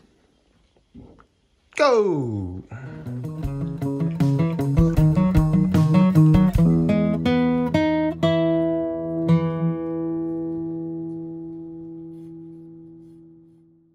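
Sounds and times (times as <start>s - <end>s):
acoustic guitar plucking: 2.7s - 13.5s.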